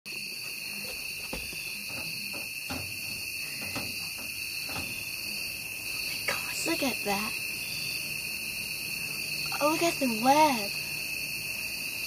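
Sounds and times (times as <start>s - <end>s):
crickets chirping: 0.1s - 12.0s.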